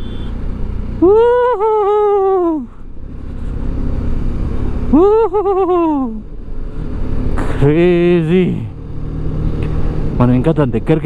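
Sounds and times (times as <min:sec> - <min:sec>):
motorcycle engine rumble: 0:00.0 - 0:11.0
man's excited wordless cries: 0:01.0 - 0:02.8, 0:04.8 - 0:06.3.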